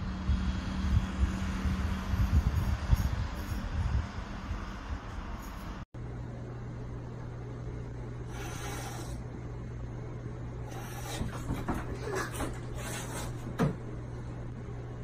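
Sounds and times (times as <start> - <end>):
steady low hum: 0.0 - 15.0
cat hissing: 8.2 - 9.2, 10.6 - 13.5.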